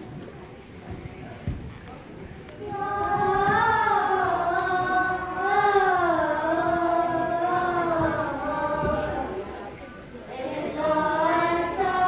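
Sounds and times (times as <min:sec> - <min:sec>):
children's choir singing: 0:02.6 - 0:12.0.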